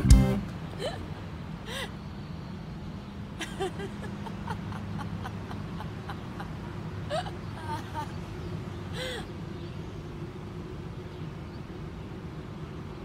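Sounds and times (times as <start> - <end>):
low background hum: 0.0 - 13.0
woman giggling quietly: 0.8 - 2.0, 3.4 - 8.2.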